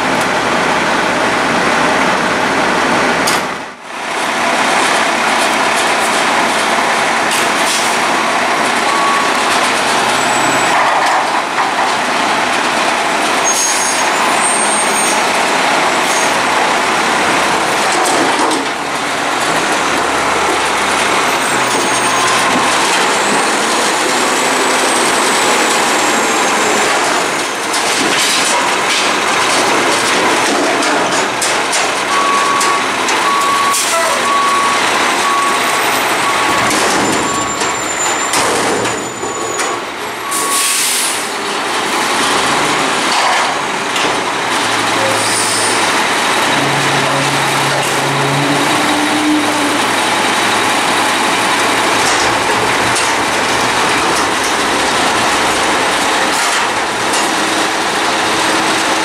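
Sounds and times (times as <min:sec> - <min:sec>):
truck engine and hydraulics: 0:00.0 - 0:59.0
reversing alarm beeping: 0:08.8 - 0:09.5, 0:21.0 - 0:27.0, 0:32.1 - 0:40.9
air brake hiss: 0:40.3 - 0:41.3.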